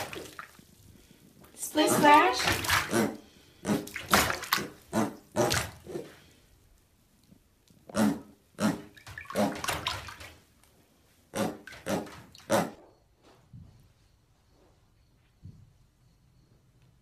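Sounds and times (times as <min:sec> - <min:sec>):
piglet splashing in water: 0:00.0 - 0:00.8, 0:01.8 - 0:06.0, 0:08.6 - 0:10.5, 0:11.4 - 0:12.6.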